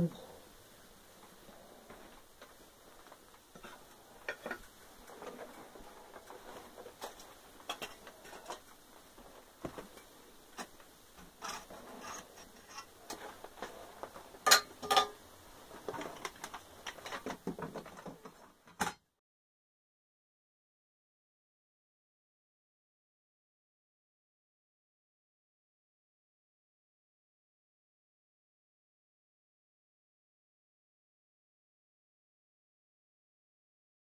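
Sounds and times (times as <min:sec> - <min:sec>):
metal tools clinking on crucible: 0:09.8 - 0:15.2.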